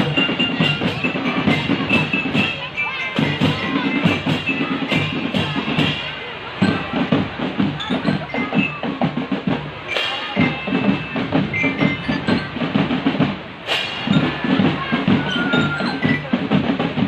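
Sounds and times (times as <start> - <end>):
bell-like melody notes: 0.0 - 16.7
marching drums: 0.0 - 17.0
cymbal crashes: 12.8 - 15.2.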